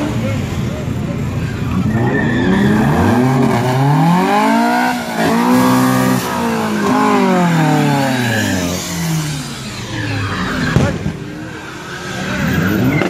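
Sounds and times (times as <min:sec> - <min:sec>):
tyres squealing: 0:01.4 - 0:09.0
car engine revving: 0:01.5 - 0:13.0.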